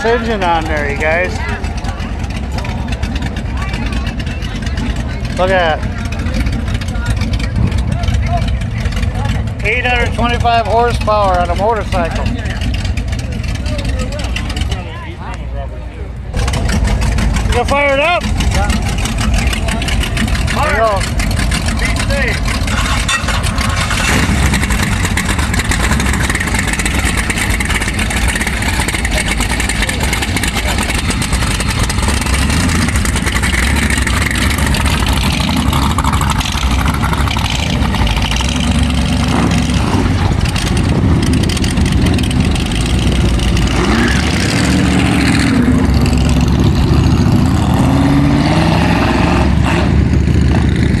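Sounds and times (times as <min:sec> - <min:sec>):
motorcycle engine revving: 0:00.0 - 0:15.0, 0:16.3 - 0:51.0
other motorcycles: 0:00.0 - 0:51.0.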